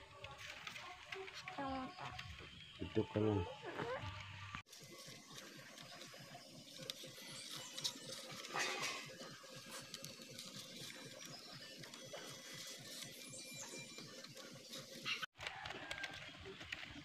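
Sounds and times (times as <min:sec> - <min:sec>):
bamboo strips rustling and clicking: 0:00.1 - 0:02.5, 0:06.8 - 0:17.0.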